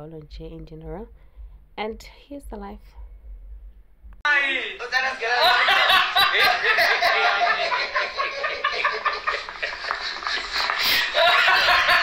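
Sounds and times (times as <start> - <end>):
overlapping talk: 4.2 - 12.0
men laughing: 4.8 - 12.0.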